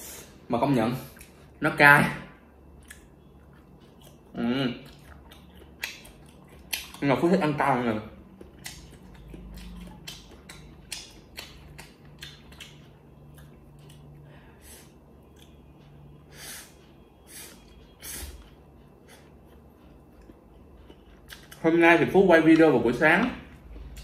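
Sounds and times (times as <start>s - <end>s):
person chewing: 2.7s - 7.6s, 8.2s - 21.7s, 23.5s - 24.0s.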